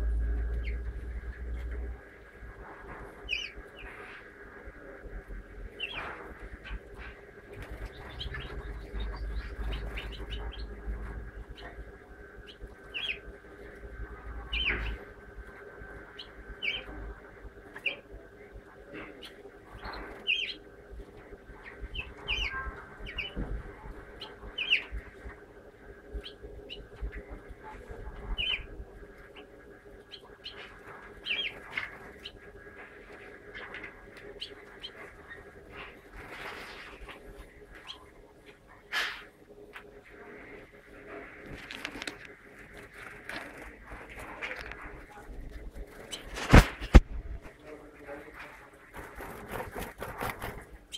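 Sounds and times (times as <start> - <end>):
finch chirping: 0.1 - 1.7, 3.2 - 4.2, 5.7 - 13.3, 14.2 - 15.1, 16.0 - 18.0, 19.0 - 20.7, 21.5 - 25.2, 26.2 - 27.4, 28.2 - 32.4, 33.4 - 38.1, 45.9 - 46.9
wing flutters: 41.4 - 47.5, 48.3 - 50.9.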